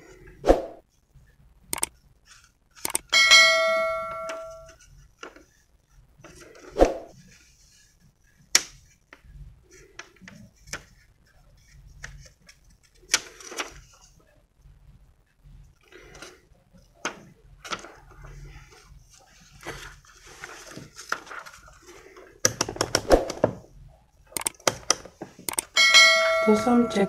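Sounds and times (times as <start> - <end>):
bell ding: 3.2 - 4.7, 25.8 - 27.0
crackling plastic sheet: 4.7 - 14.4, 16.0 - 22.4.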